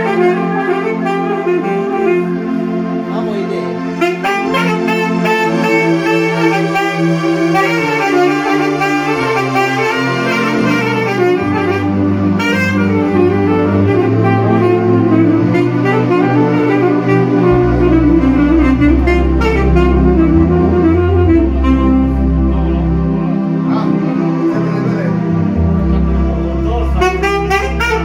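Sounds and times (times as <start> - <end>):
held bass notes: 0.0 - 28.0
saxophone melody: 0.0 - 28.0.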